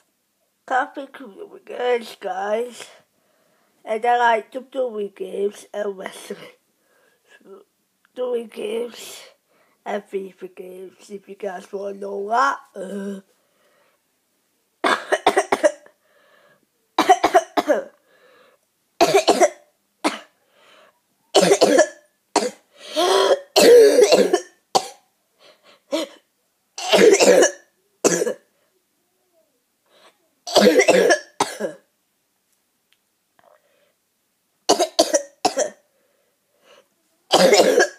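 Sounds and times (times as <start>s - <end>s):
boy coughing: 14.8s - 15.9s, 17.0s - 18.0s, 19.0s - 20.3s, 21.4s - 25.0s, 26.8s - 28.5s, 30.5s - 31.9s, 34.7s - 35.8s, 37.3s - 37.9s.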